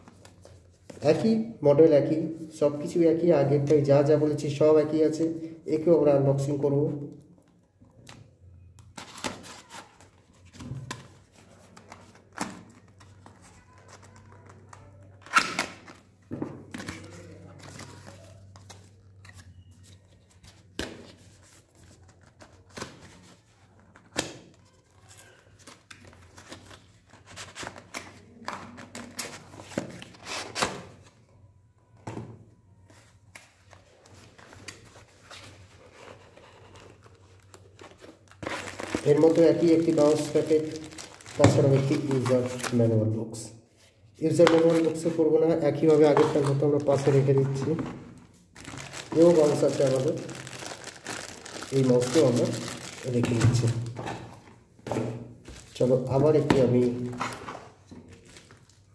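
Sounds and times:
packaging crinkling and tearing: 0:33.7 - 0:42.8, 0:48.4 - 0:54.4.

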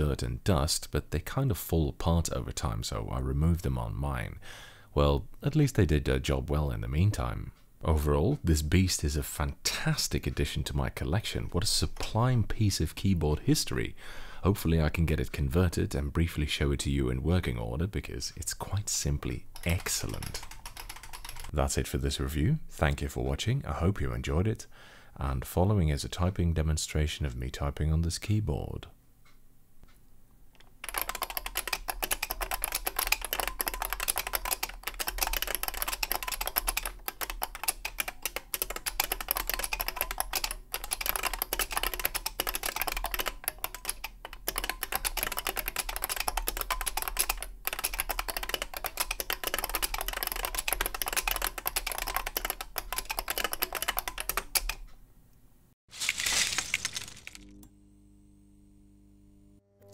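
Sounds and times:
fast typing on clicky keyboard: 0:19.5 - 0:21.5, 0:30.8 - 0:54.9.

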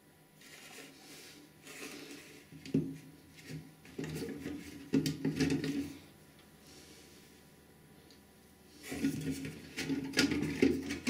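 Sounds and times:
plastic scraping and rubbing: 0:03.4 - 0:06.0, 0:08.8 - 0:11.0.

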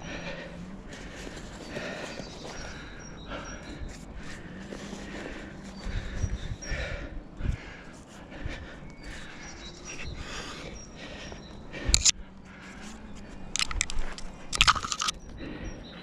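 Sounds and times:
man breathing hard: 0:00.0 - 0:16.0.

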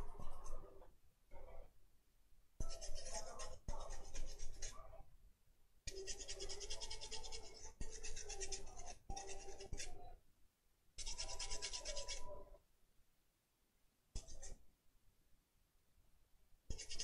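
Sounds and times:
toothbrush scrubbing circuit board: 0:05.9 - 0:10.0, 0:11.0 - 0:12.4.

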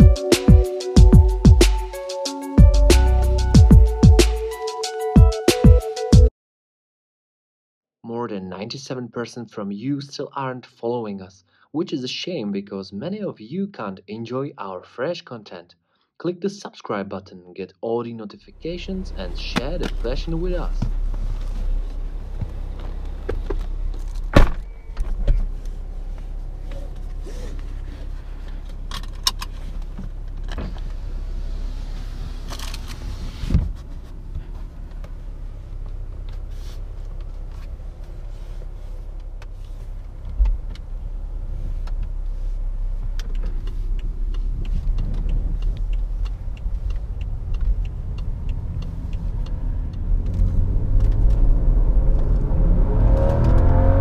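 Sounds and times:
car engine idling: 0:18.5 - 0:52.5
car door thump: 0:24.3 - 0:25.5, 0:33.4 - 0:33.8.

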